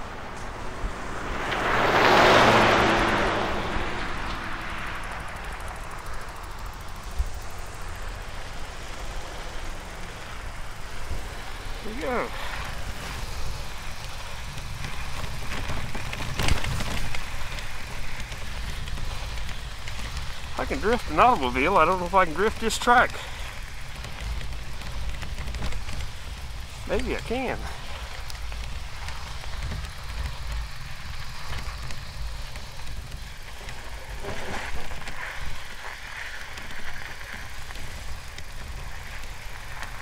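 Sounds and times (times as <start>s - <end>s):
low rumble: 0.0s - 11.9s
low uneven rumble: 0.0s - 40.0s
tyres rolling through snow: 0.0s - 40.0s.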